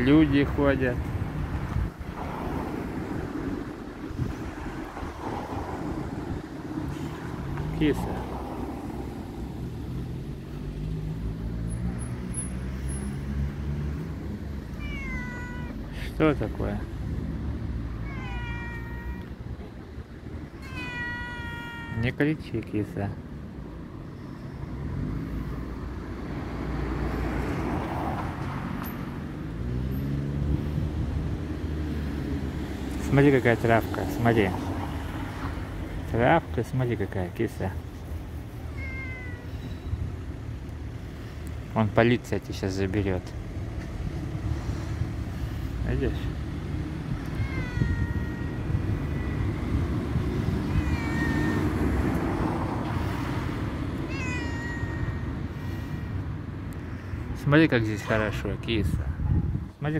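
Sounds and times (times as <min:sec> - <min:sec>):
vehicle engine hum: 0:00.0 - 0:59.6
road traffic rumble: 0:00.0 - 0:59.9
cat meowing: 0:14.6 - 0:15.9, 0:17.9 - 0:22.2, 0:38.6 - 0:40.2, 0:47.1 - 0:52.4, 0:53.8 - 0:56.2.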